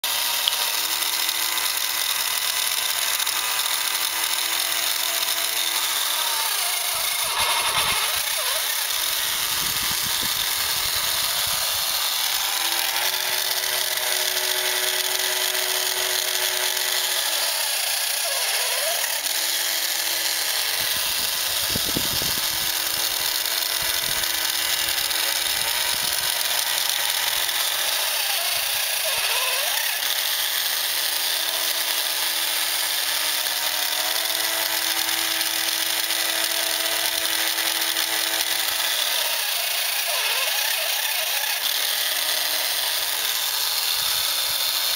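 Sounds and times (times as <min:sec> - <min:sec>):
toy motor and gears whirring: 0:00.0 - 0:44.9
short mechanical clicks: 0:00.2 - 0:13.2.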